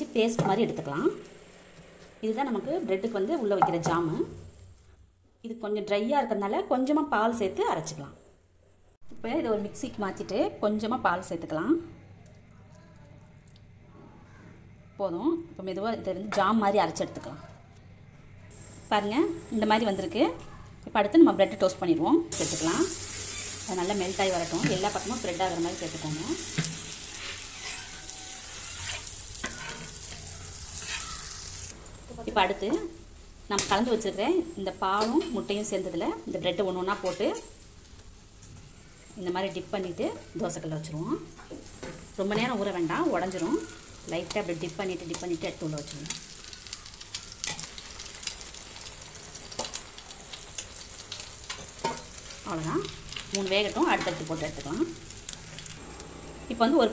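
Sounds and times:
butter sizzling on hot pan: 22.3s - 56.7s
spatula scraping pan: 23.0s - 23.7s, 24.4s - 31.8s.

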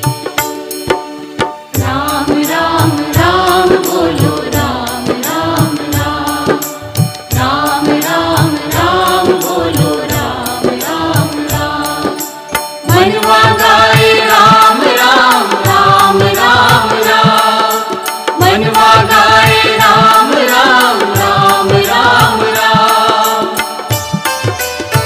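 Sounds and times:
devotional song melody: 0.0s - 25.0s
steady drum beat: 1.8s - 25.0s.

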